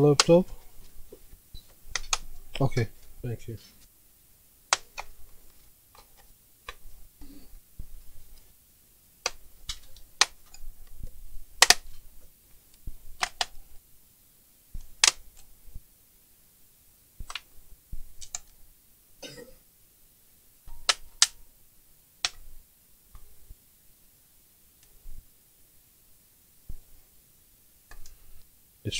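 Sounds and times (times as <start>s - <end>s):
plastic clips clicking and snapping: 1.9s - 2.9s, 9.2s - 10.6s, 11.6s - 12.0s, 13.2s - 13.6s, 14.8s - 15.5s, 18.2s - 18.6s, 20.7s - 21.4s.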